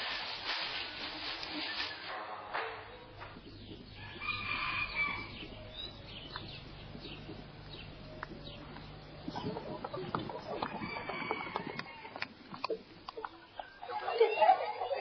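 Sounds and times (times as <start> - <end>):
rooster crowing: 4.0 - 5.7, 10.4 - 12.3.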